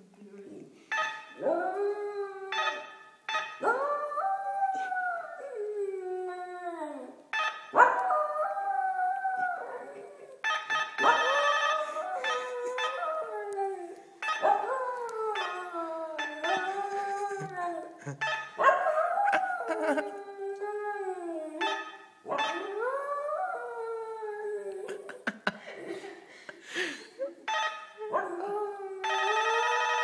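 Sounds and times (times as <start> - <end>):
doorbell chimes: 29.0 - 30.0.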